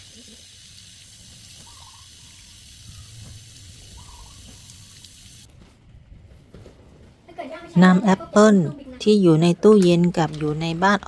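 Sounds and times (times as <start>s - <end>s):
water from a hose splashing: 0.0s - 5.5s.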